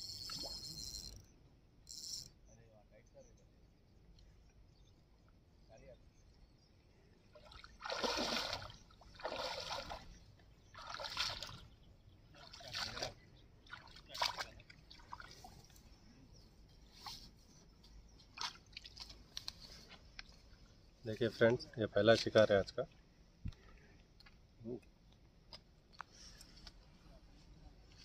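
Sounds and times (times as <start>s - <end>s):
water splashing around wading legs: 7.4s - 10.2s, 10.8s - 11.7s, 12.4s - 15.5s, 18.3s - 19.2s.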